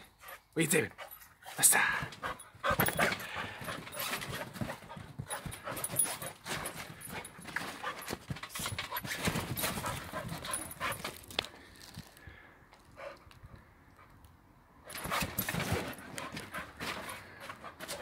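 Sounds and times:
puppy panting: 0.1s - 11.2s, 15.0s - 18.0s
paws knocking on trampoline: 2.0s - 11.4s, 14.9s - 18.0s.

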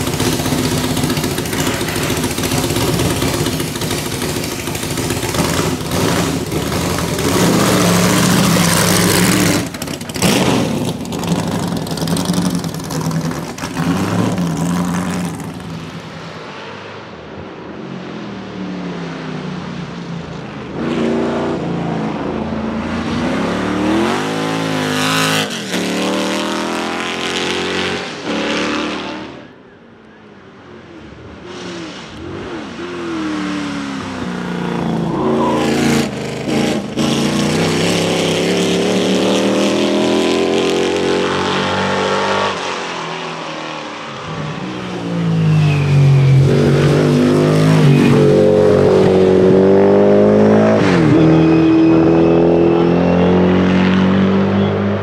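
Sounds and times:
racing car accelerating past: 31.5s - 55.0s.

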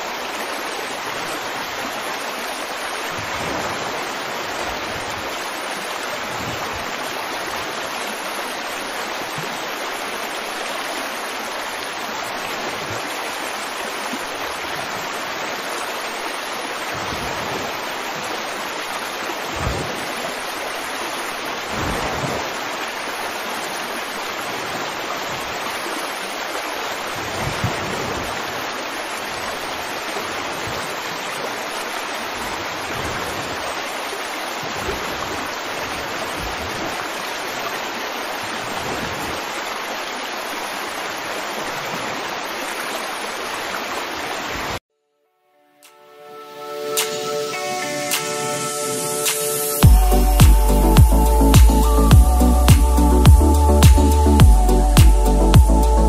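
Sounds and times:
rushing water: 0.0s - 44.8s, 45.9s - 56.0s
soft low thuds: 49.8s - 55.7s.

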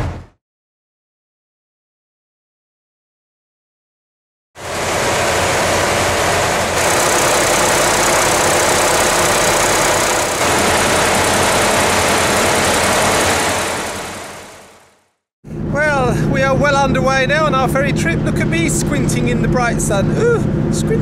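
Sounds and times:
diesel engine running: 4.6s - 21.0s.

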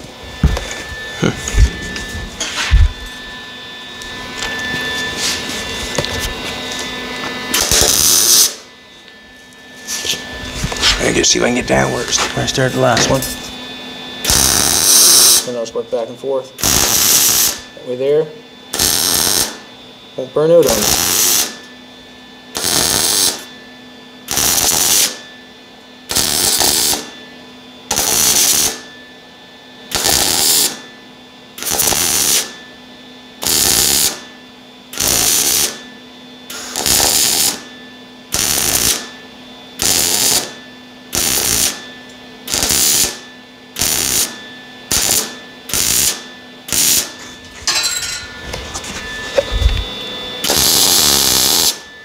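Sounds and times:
welder low hum: 0.0s - 52.0s
welding arc crackle: 7.5s - 8.6s, 14.2s - 15.5s, 16.6s - 17.6s, 18.7s - 19.6s, 20.7s - 21.5s, 22.6s - 23.5s, 24.3s - 25.2s, 26.1s - 27.1s, 27.9s - 28.8s, 29.9s - 30.8s, 31.6s - 32.5s, 33.4s - 34.2s, 35.0s - 35.8s, 36.5s - 37.7s, 38.3s - 39.1s, 39.8s - 41.8s, 42.5s - 43.2s, 43.8s - 47.2s, 50.4s - 51.8s.

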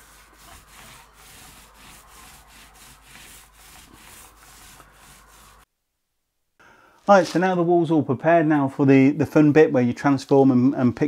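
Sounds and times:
paint roller rubbing on panel: 0.0s - 5.7s.

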